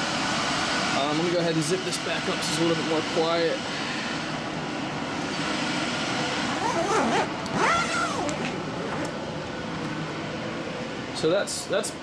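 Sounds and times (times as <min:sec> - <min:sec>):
exhaust fan: 0:00.0 - 0:12.0
zipper being pulled: 0:06.6 - 0:09.1.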